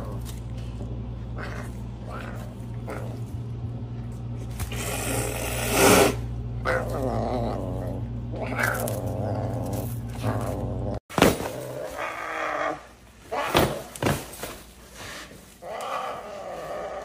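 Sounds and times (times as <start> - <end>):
serval growling: 0.8 - 3.5, 4.7 - 11.0
bag thumping on tile floor: 11.1 - 11.7, 13.4 - 14.6.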